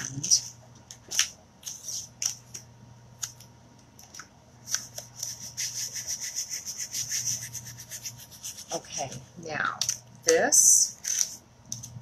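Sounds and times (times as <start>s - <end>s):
hand rubbing on glass: 5.3s - 8.8s.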